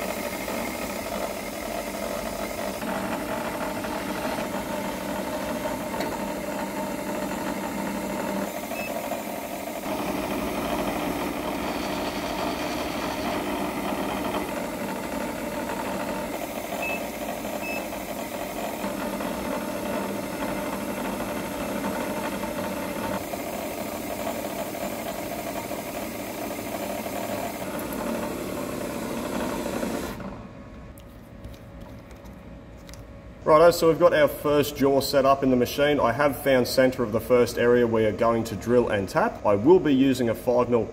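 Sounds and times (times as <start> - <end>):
milling machine running: 0.0 - 30.6.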